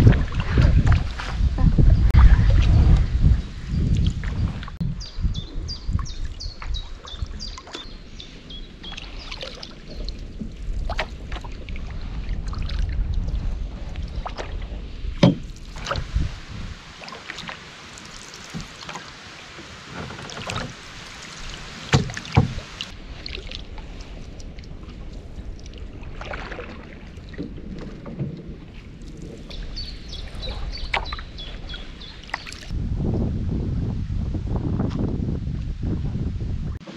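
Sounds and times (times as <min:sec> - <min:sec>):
paddle splashing in water: 0:00.0 - 0:04.8, 0:05.9 - 0:32.8
sharp knocks: 0:15.2 - 0:15.5.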